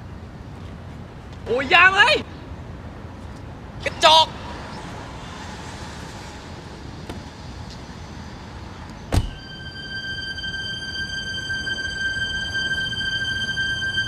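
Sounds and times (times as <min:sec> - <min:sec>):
car door shutting: 0:09.1 - 0:09.5
held high tone: 0:09.3 - 0:14.0.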